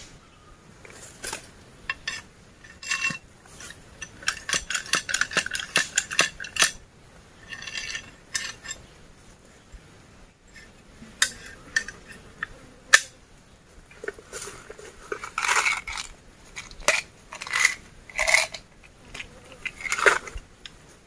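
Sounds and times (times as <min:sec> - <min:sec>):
dry bamboo leaves rustling: 0:00.0 - 0:21.0
metal rod clinking: 0:01.9 - 0:06.8, 0:07.4 - 0:08.8.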